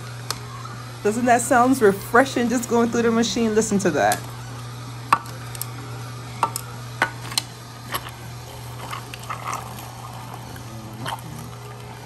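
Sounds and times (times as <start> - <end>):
juicer motor hum: 0.0 - 12.0
fruit cracking and crunching: 6.4 - 12.0.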